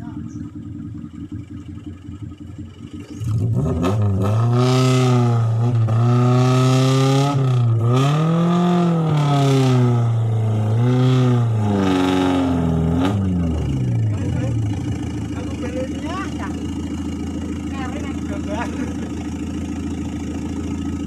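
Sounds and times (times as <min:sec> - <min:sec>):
engine revving hard: 0:03.1 - 0:16.6.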